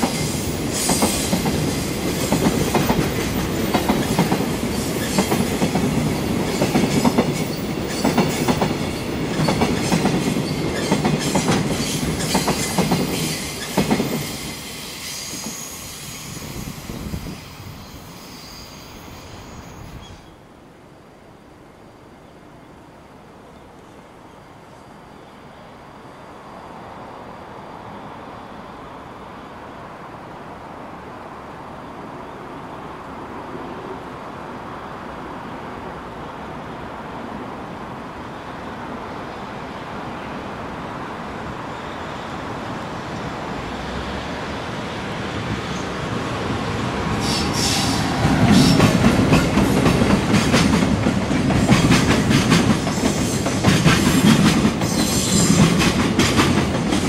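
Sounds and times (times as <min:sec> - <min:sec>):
freight train rumble: 0:00.0 - 0:18.2, 0:22.5 - 0:57.0
train wheels clattering over rail joints: 0:47.2 - 0:57.0.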